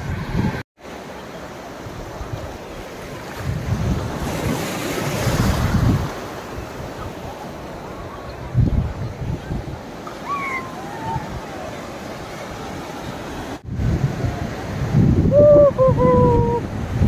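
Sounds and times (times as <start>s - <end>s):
wind rumbling on microphone: 0.0s - 0.6s, 1.9s - 17.0s
sea surf breaking: 0.0s - 17.0s.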